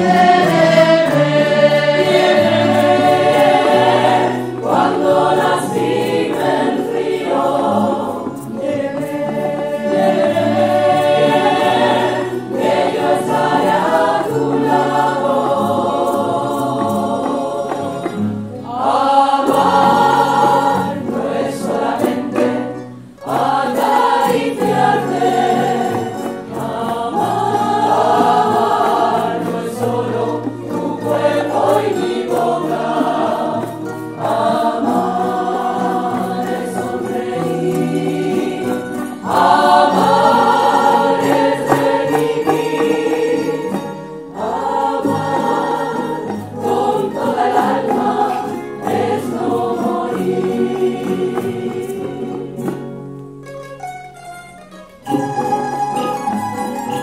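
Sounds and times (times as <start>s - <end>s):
women's choir singing: 0.0s - 53.1s
guitars playing: 0.0s - 57.0s.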